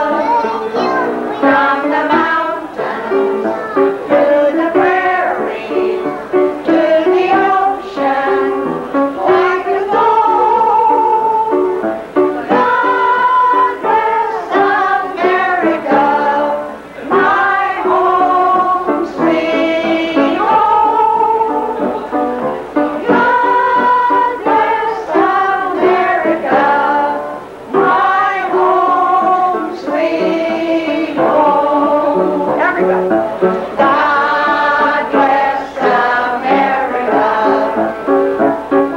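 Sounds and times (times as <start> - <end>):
voice-like melody: 0.0 - 38.9
band playing a tune: 31.2 - 38.9.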